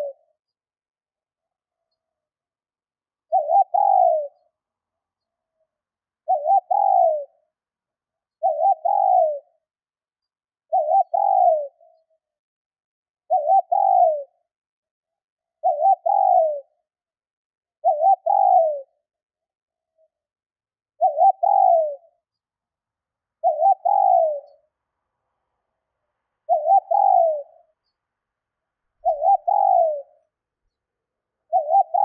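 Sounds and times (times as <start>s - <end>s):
dove cooing: 0.0s - 0.3s, 3.3s - 4.5s, 6.2s - 7.4s, 8.4s - 9.6s, 10.7s - 12.0s, 13.3s - 14.3s, 15.6s - 16.8s, 17.8s - 19.0s, 21.0s - 22.2s, 23.4s - 24.7s, 26.5s - 27.7s, 29.0s - 30.2s, 31.4s - 32.0s.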